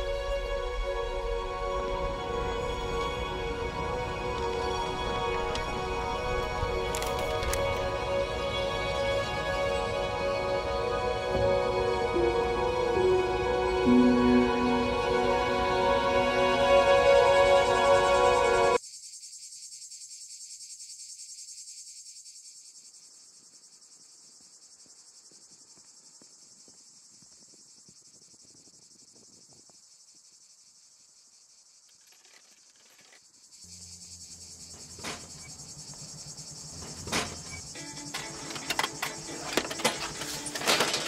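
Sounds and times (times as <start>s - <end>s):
music cue: 0.0s - 18.8s
shrill insect chorus: 0.0s - 41.0s.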